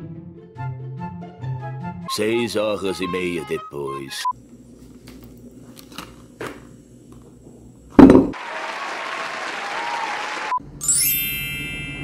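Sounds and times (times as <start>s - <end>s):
loud thump: 8.0s - 8.4s
steady applause-like hiss: 8.3s - 10.6s.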